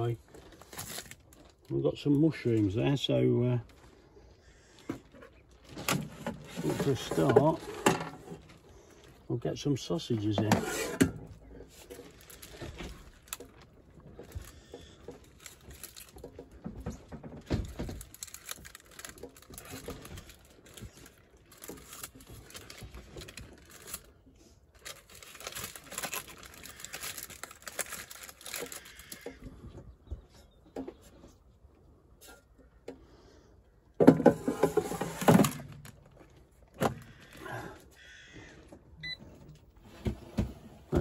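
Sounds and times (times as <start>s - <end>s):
plastic packaging crinkling: 0.0s - 2.8s, 11.6s - 16.6s, 17.4s - 29.3s.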